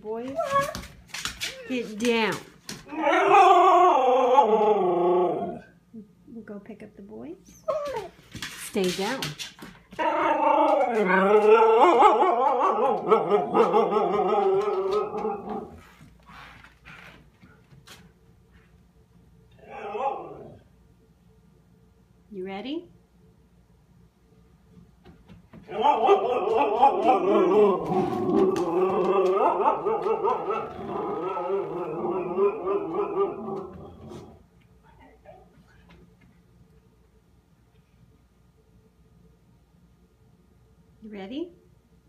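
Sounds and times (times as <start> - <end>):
husky howling: 2.8 - 5.8, 10.0 - 15.8, 19.5 - 20.7, 25.7 - 34.4.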